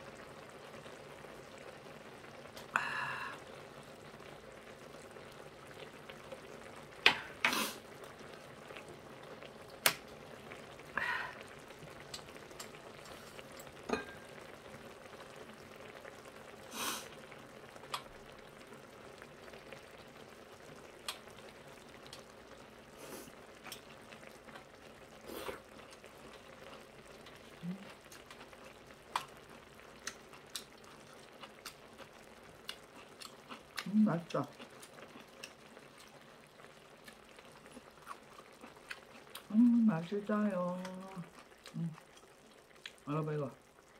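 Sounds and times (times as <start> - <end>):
stew bubbling and sizzling: 0.0 - 43.9.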